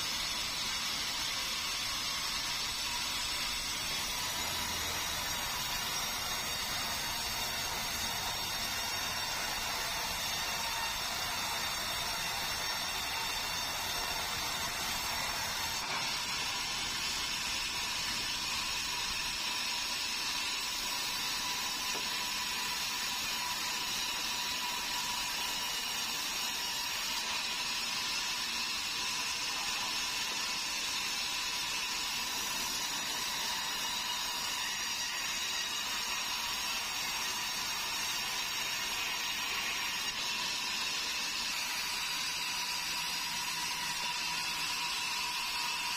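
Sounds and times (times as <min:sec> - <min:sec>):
band saw cutting wood: 0:00.0 - 0:45.9.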